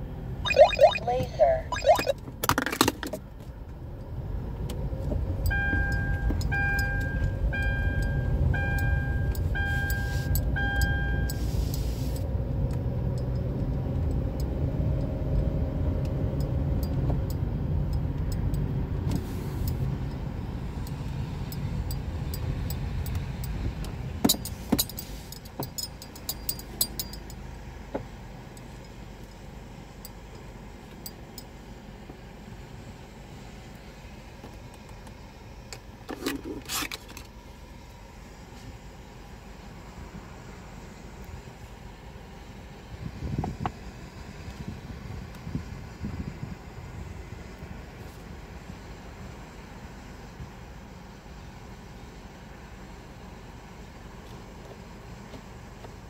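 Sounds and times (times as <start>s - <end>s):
car engine and tyres rumbling: 0.0s - 56.0s
electronic beeps: 0.5s - 2.1s.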